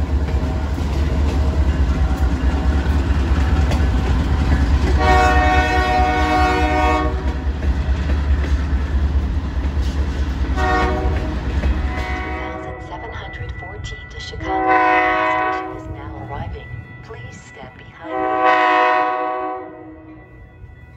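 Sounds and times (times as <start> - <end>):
freight train rumbling on rails: 0.0 - 20.9
diesel locomotive horn: 4.8 - 7.4, 10.5 - 13.0, 14.4 - 16.2, 18.0 - 20.3.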